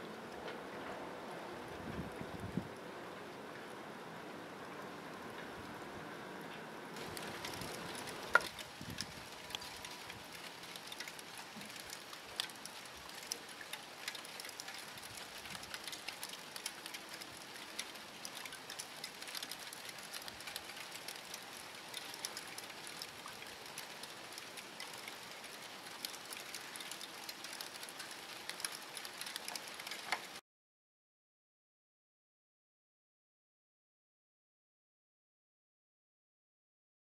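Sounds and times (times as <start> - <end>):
wet snow and freezing rain hiss: 0.0 - 30.4
ice pellets ticking on surfaces: 7.0 - 30.4.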